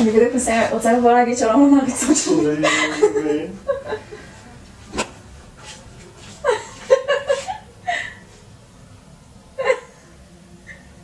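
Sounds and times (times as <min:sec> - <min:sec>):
woman giggling: 0:02.6 - 0:04.3, 0:06.4 - 0:08.2, 0:09.6 - 0:10.0.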